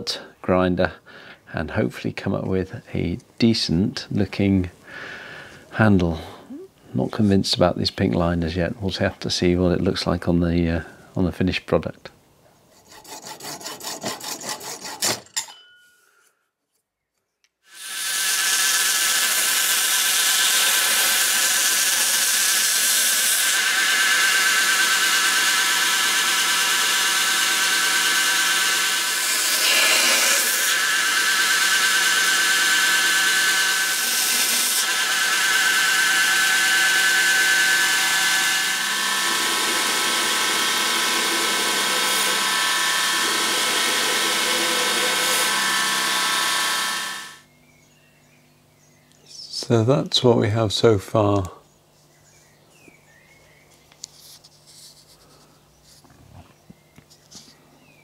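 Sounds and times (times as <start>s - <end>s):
hacksaw strokes: 12.7s - 15.4s, 17.7s - 47.4s
belt grinder running: 17.7s - 47.4s.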